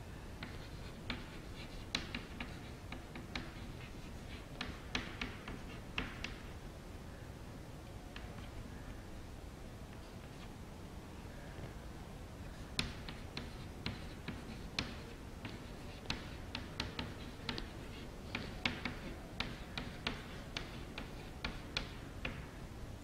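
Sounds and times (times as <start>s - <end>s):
chalk tapping on chalkboard: 0.4s - 6.5s, 12.8s - 22.5s.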